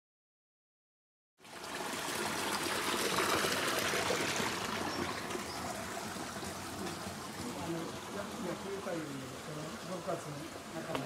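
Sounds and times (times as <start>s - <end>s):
rushing water: 1.4s - 11.0s.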